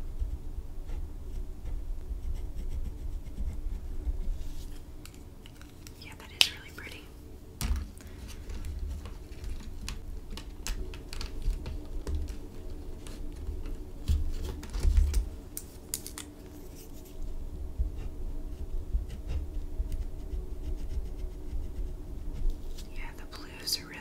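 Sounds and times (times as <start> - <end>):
plastic pens clicking and tapping: 5.0 - 7.0, 7.6 - 16.3.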